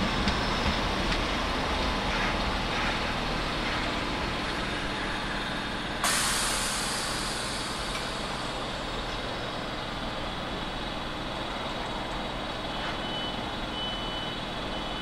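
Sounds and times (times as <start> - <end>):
train rumbling: 0.0 - 14.8
air brakes hissing: 5.1 - 9.5.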